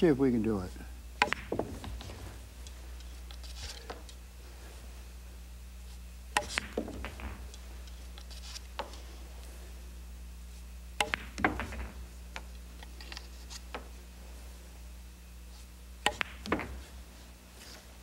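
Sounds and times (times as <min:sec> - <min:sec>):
single ball clicks: 0:01.2 - 0:01.6, 0:11.0 - 0:12.5, 0:16.0 - 0:16.8
pool balls clacking: 0:01.2 - 0:04.2, 0:06.3 - 0:09.5, 0:11.0 - 0:14.0, 0:16.0 - 0:17.2.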